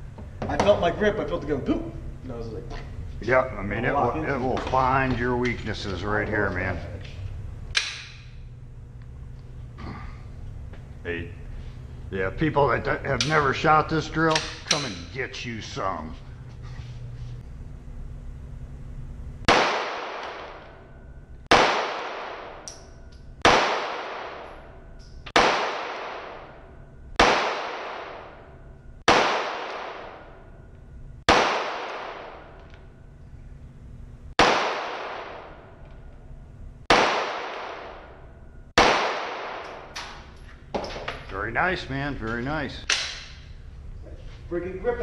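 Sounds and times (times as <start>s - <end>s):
handgun shots echoing indoors: 7.7s - 8.5s, 14.3s - 15.0s, 19.5s - 30.6s, 31.3s - 33.0s, 34.4s - 36.2s, 36.9s - 41.2s, 42.8s - 43.5s.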